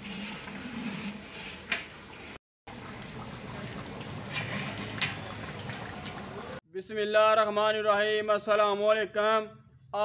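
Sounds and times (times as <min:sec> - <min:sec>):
stew bubbling in a pot: 0:02.0 - 0:06.6.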